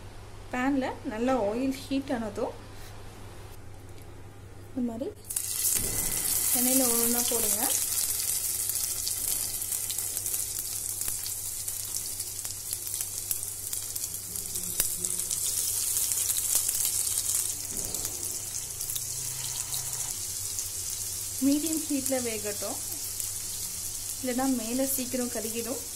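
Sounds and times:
fish sizzling in hot oil: 5.3s - 25.9s.

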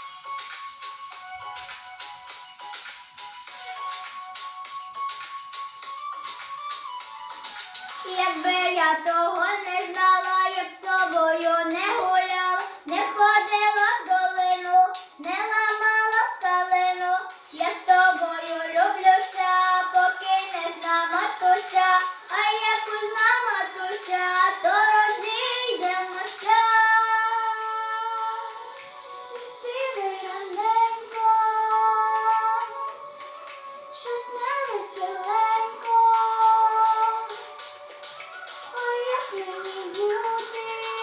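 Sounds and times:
girl singing: 8.0s - 37.6s, 38.7s - 41.0s.

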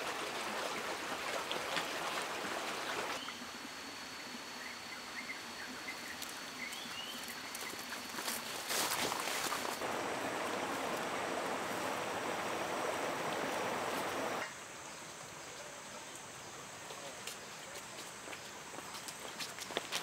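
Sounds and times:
water rushing: 0.0s - 3.2s, 9.8s - 14.5s.

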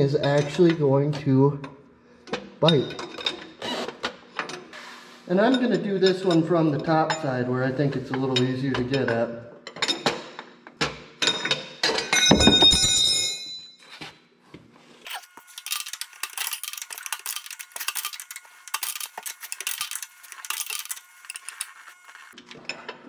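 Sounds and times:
metal tool clanking: 11.2s - 13.6s
wrench clicking and scraping: 15.1s - 22.4s.

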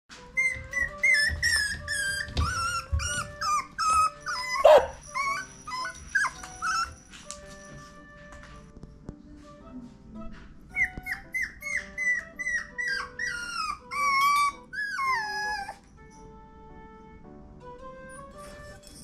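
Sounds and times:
soft background music: 0.1s - 19.0s
puppy whining cries: 0.2s - 7.4s, 10.7s - 16.2s, 17.9s - 19.0s
puppy barking: 0.5s - 7.0s.

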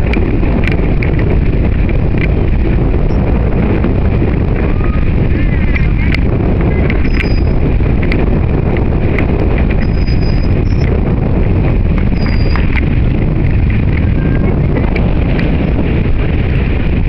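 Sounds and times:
wind buffeting microphone: 0.0s - 17.0s
dolphin clicks and chirps: 6.8s - 7.6s.

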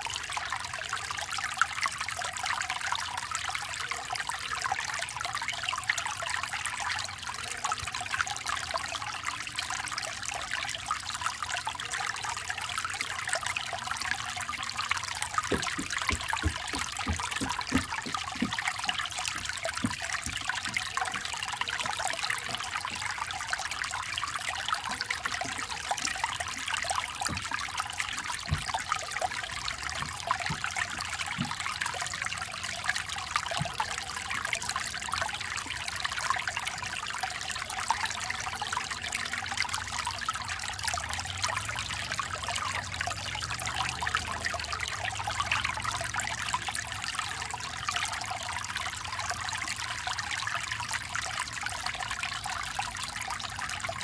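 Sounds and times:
brook babbling over stones: 0.0s - 54.0s
footsteps on wooden footbridge: 15.4s - 20.8s.

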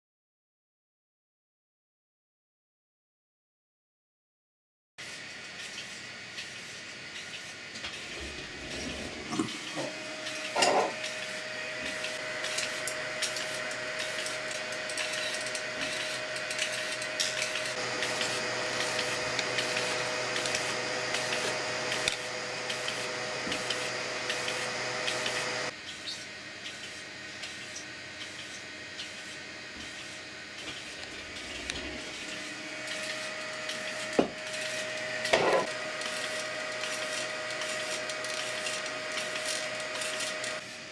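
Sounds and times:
fan noise: 5.0s - 40.9s
stepper motors whining: 8.0s - 25.7s, 30.6s - 40.7s.

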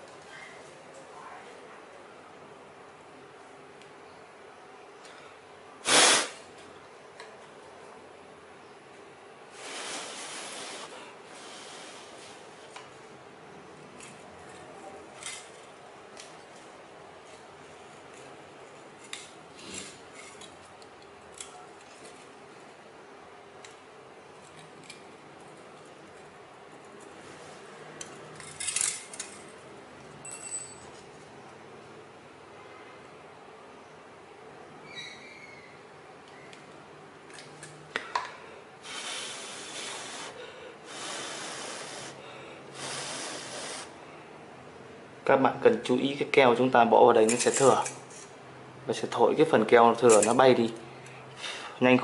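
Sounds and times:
person blowing breaths: 9.5s - 12.3s, 38.8s - 44.0s, 51.4s - 51.8s.

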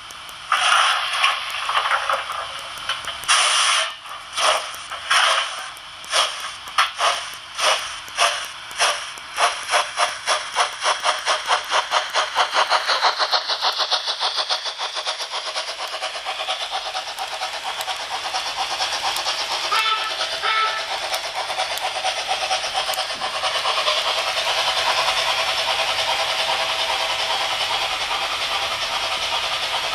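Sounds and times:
model steam locomotive chuffing: 0.0s - 29.9s
wheels clattering over rail joints: 0.4s - 29.9s.

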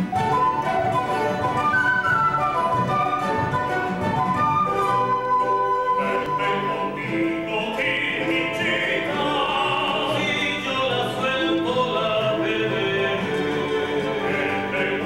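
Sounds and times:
acoustic guitars: 0.0s - 15.0s
wooden flutes: 0.0s - 15.0s
voices singing: 5.0s - 15.0s.

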